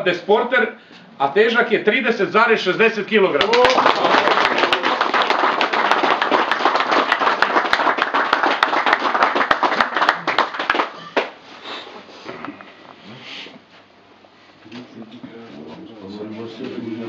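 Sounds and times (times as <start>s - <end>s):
small group applauding: 3.4s - 11.5s.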